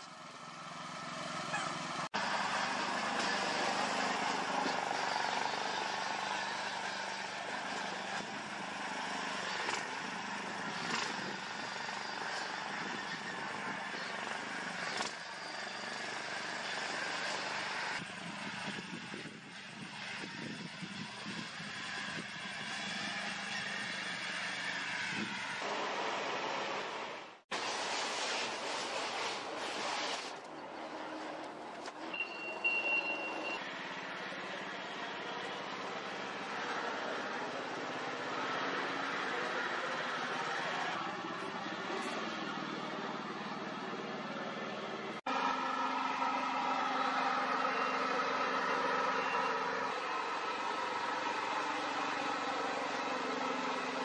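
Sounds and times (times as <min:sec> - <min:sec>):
tractor engine running: 0:00.0 - 0:26.1, 0:30.4 - 0:54.0
forklift warning beeper: 0:32.1 - 0:33.6.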